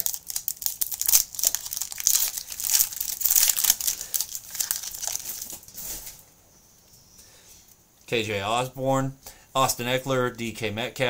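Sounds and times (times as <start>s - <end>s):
plastic wrapper tearing and crinkling: 0.0s - 6.1s.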